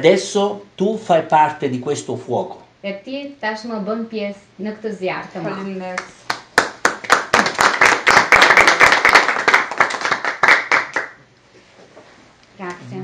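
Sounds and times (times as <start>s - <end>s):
small group applauding: 6.0s - 11.2s.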